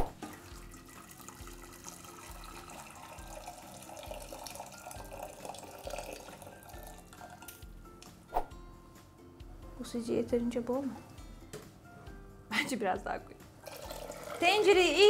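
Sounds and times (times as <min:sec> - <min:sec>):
water pouring into metal pot: 0:00.0 - 0:07.7, 0:13.6 - 0:15.0.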